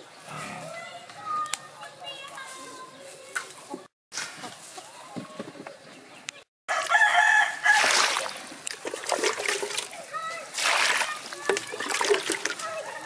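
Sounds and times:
rooster crowing: 0:06.7 - 0:08.2.

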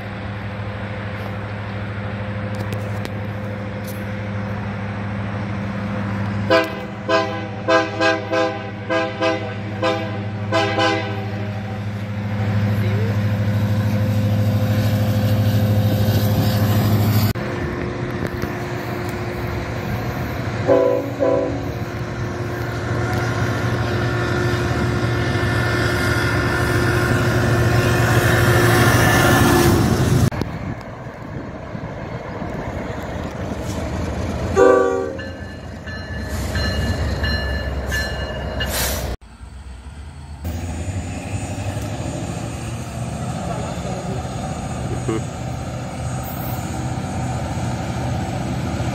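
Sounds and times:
locomotive engine running: 0:00.0 - 0:48.9
train cars passing rumble: 0:00.0 - 0:48.9
locomotive horn blasts: 0:06.5 - 0:11.9, 0:20.6 - 0:21.8, 0:34.6 - 0:35.3.

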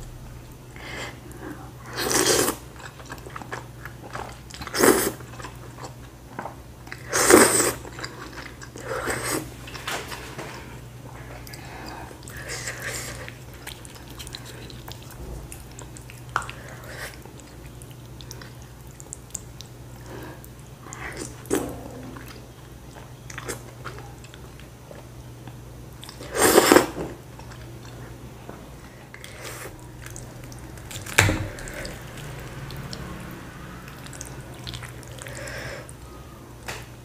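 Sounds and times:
chewing and mouth noises: 0:00.5 - 0:28.2, 0:29.0 - 0:36.1.

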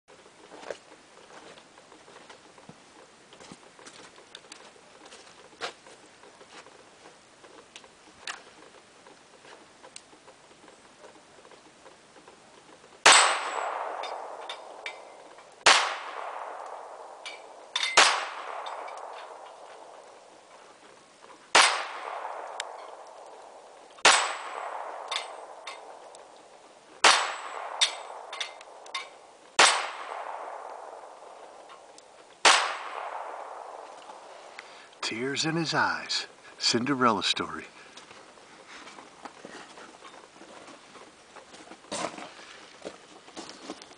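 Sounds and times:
steel plate targets clanging: 0:13.0 - 0:20.0, 0:24.0 - 0:26.1, 0:27.0 - 0:30.6
pistol shots with echo: 0:13.0 - 0:20.2, 0:21.5 - 0:26.4, 0:27.0 - 0:31.8, 0:32.4 - 0:34.3.

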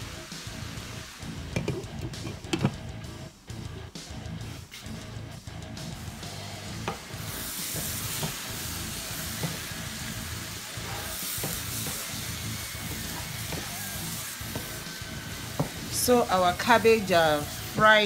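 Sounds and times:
vegetables sizzling in a frying pan: 0:00.0 - 0:01.6, 0:06.2 - 0:18.0.

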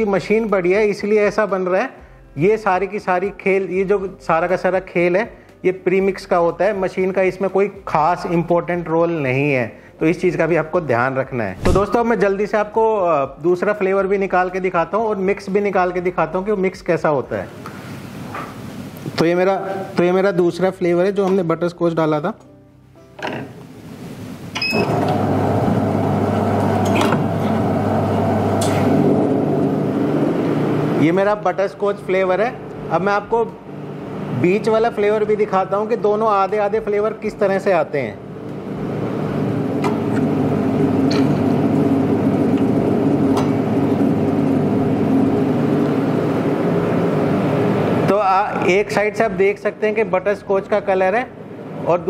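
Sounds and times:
short beep: 0:24.6 - 0:24.9
machine motor humming: 0:24.8 - 0:31.2, 0:38.4 - 0:48.1.

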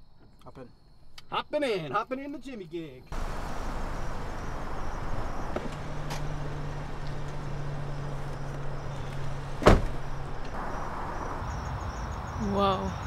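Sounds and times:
car engine idling: 0:03.1 - 0:11.7
car door slamming: 0:03.2 - 0:10.7.

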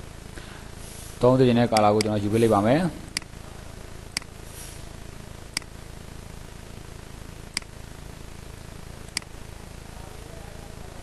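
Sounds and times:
steady low hum: 0:00.0 - 0:11.0
computer mouse clicks: 0:07.5 - 0:07.7.

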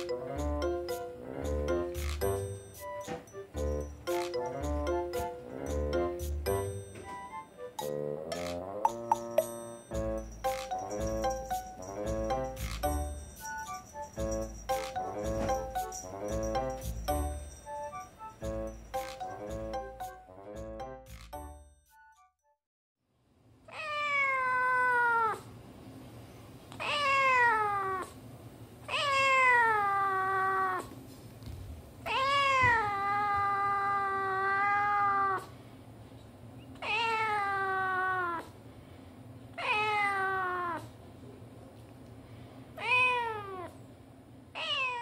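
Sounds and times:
cat meowing: 0:23.7 - 0:25.5, 0:26.8 - 0:28.2, 0:28.9 - 0:30.9, 0:32.1 - 0:35.5, 0:36.8 - 0:38.5, 0:39.6 - 0:40.9, 0:42.8 - 0:43.8, 0:44.6 - 0:45.0.

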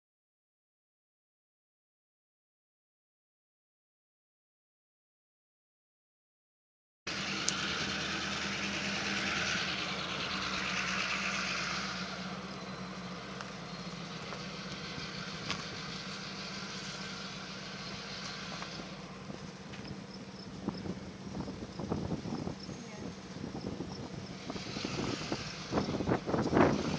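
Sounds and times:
engine hum: 0:07.1 - 0:26.9.

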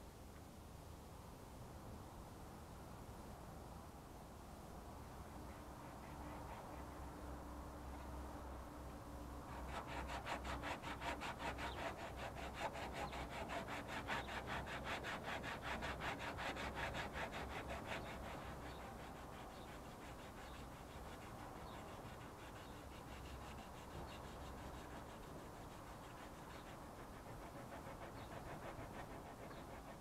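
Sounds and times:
hand sanding back and forth: 0:09.5 - 0:30.0.

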